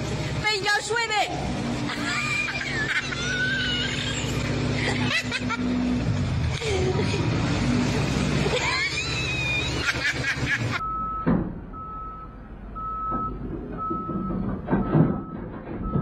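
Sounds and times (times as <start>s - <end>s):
truck reversing alarm beeping: 10.8s - 16.0s
heavy knocks and thuds: 11.2s - 11.7s, 13.0s - 16.0s.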